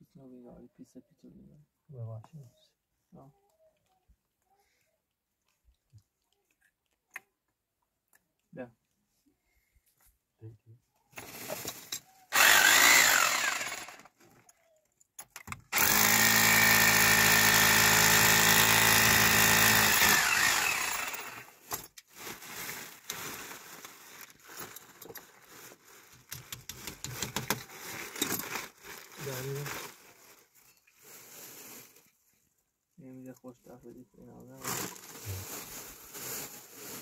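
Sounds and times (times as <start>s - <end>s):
power drill boring into wall: 12.3s - 14.2s, 15.4s - 21.7s.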